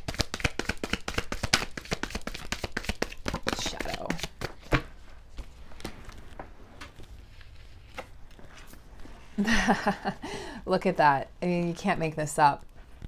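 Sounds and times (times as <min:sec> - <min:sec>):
cards being shuffled: 0:00.0 - 0:09.1.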